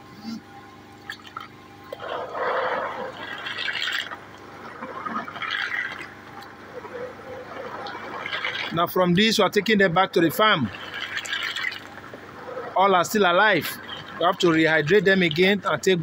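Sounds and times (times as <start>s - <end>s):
hands sloshing water in basin: 1.1s - 8.8s, 10.5s - 12.2s.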